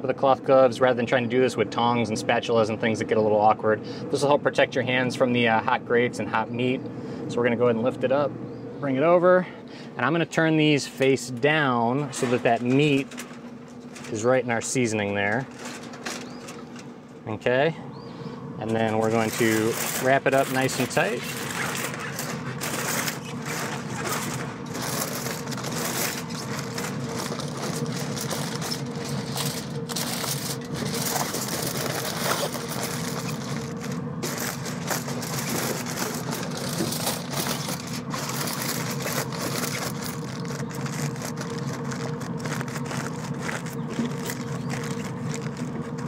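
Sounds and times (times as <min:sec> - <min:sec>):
steady mechanical hum: 0:00.0 - 0:46.0
aluminium foil crinkling: 0:12.2 - 0:16.9, 0:18.7 - 0:46.0.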